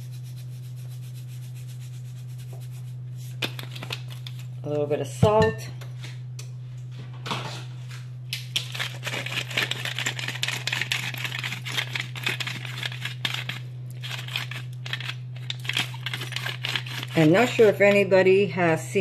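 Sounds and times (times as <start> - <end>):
steady low hum: 0.0 - 19.0
hand grinder crunching clicks: 8.6 - 17.2.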